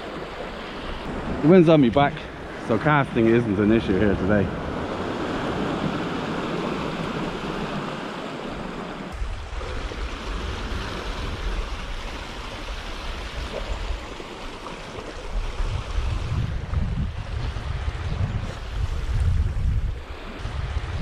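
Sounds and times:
sea swell splashing over rocks: 0.0s - 16.4s.

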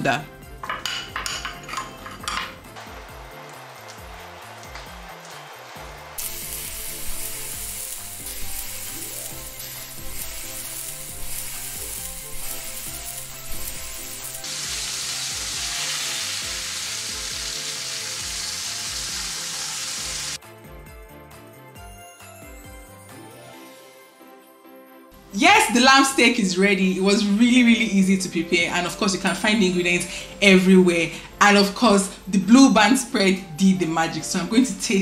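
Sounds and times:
meat sizzling in grill pan: 6.2s - 20.4s.

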